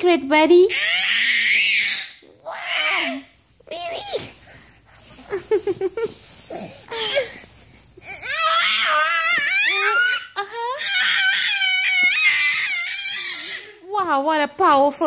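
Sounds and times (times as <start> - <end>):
toddler shrieking happily: 0.7 - 3.2, 8.2 - 13.7.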